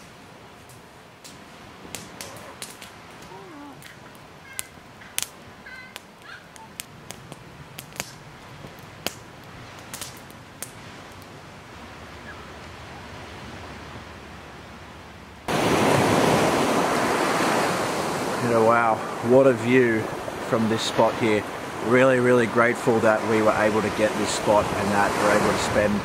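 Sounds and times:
campfire crackling and popping: 0.0s - 11.5s
surf: 0.0s - 26.0s.

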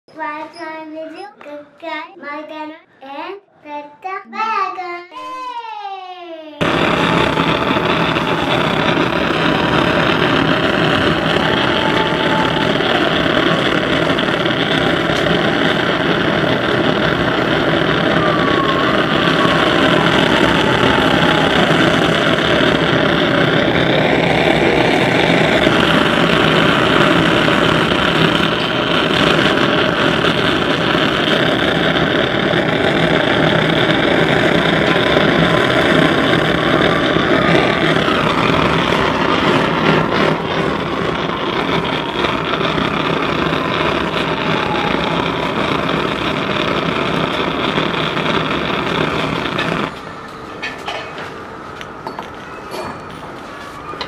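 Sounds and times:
blowtorch flame roaring: 6.6s - 54.0s.

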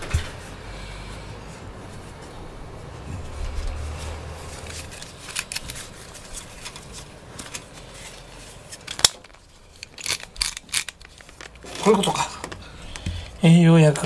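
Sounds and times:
low handling rumble: 0.0s - 6.7s.

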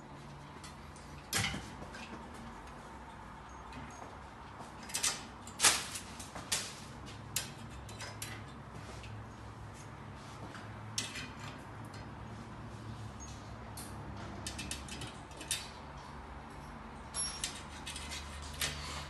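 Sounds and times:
hands handling sheet metal: 4.8s - 9.2s.

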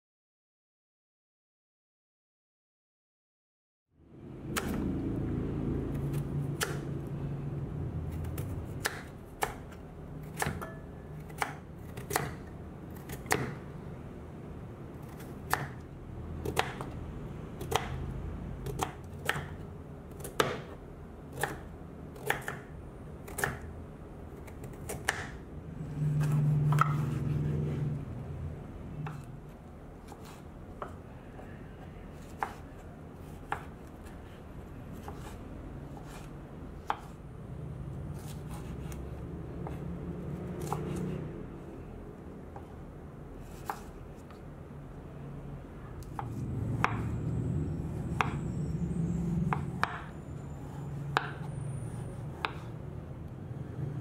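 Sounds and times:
knife chopping on wooden board: 8.1s - 13.6s, 15.1s - 15.8s, 18.6s - 19.6s, 20.2s - 23.7s, 24.4s - 25.4s, 26.2s - 27.5s, 29.0s - 29.3s, 32.2s - 33.8s, 35.0s - 37.2s, 38.2s - 39.0s, 40.6s - 41.2s, 43.4s - 44.3s, 46.0s - 47.1s, 49.5s - 50.1s, 51.1s - 51.5s, 52.4s - 52.7s.

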